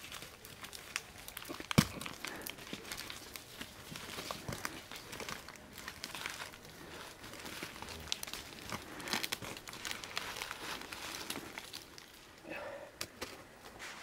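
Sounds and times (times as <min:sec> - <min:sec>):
jacket rustling against tree bark: 0:00.0 - 0:14.0.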